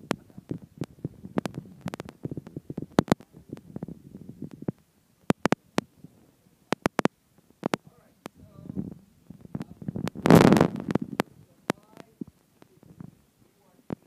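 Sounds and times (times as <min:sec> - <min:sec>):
low rubbing rumble: 0:00.0 - 0:04.8, 0:08.4 - 0:13.2.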